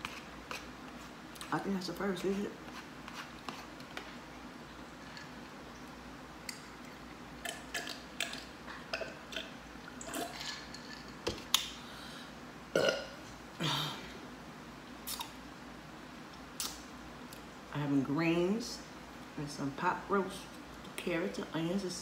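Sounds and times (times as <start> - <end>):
person burping: 12.7 - 14.1.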